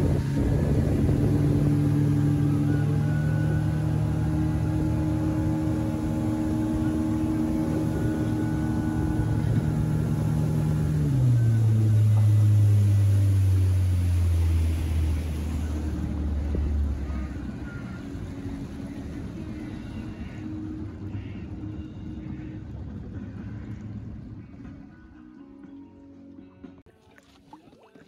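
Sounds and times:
outboard motor throttling down: 0.0 - 28.0.

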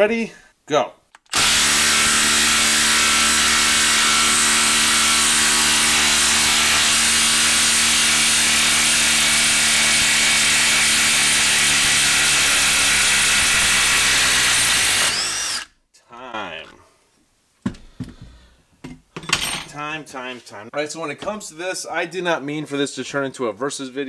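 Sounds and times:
impact driver hammering: 1.2 - 15.7.

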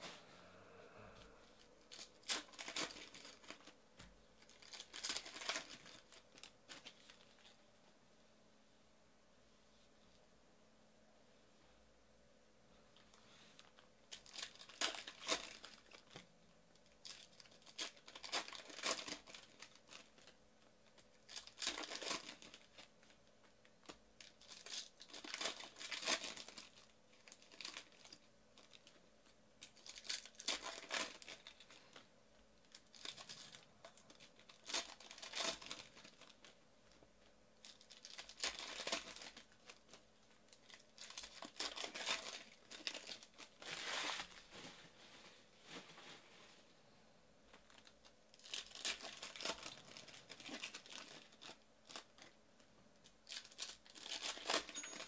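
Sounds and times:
foil wrappers crinkling: 1.8 - 3.8, 4.4 - 7.6, 13.6 - 44.7, 47.5 - 52.4, 53.0 - 55.0.

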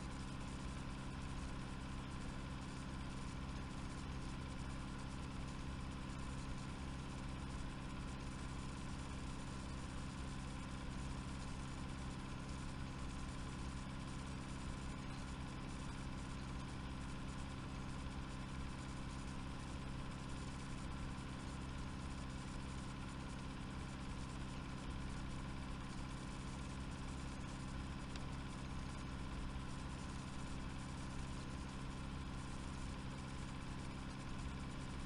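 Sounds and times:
steady low hum: 0.0 - 0.7, 14.0 - 15.9, 23.9 - 35.0.

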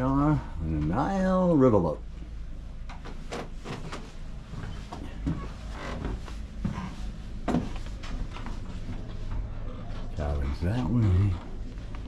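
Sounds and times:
steady low hum: 0.0 - 12.0
footsteps: 3.1 - 10.1.

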